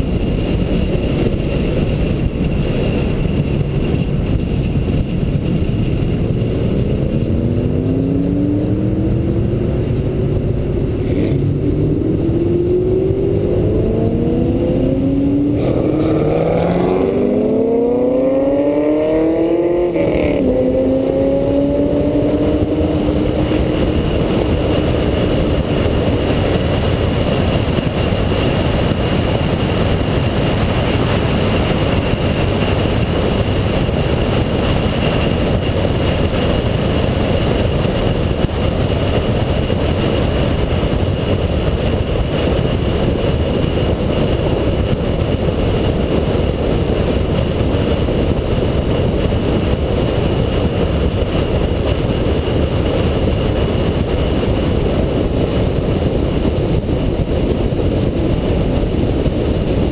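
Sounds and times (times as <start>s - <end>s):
car engine droning: 0.0s - 59.9s
wind rushing over camera: 0.0s - 59.9s
pitched engine tone: 5.5s - 26.3s.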